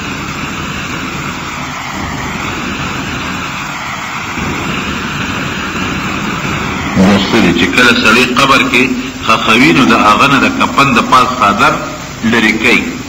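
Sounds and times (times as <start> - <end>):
cassette tape hiss and rumble: 0.0 - 13.0.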